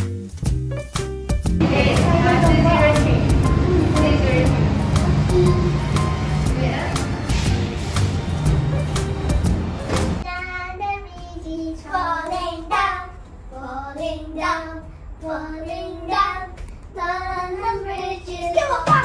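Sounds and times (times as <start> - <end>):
child singing: 5.0 - 6.0, 10.2 - 19.0.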